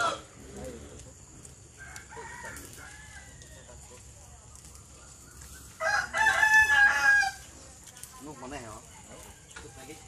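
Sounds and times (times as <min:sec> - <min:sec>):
rooster crowing: 0:00.0 - 0:00.3, 0:01.7 - 0:03.6, 0:05.6 - 0:07.4.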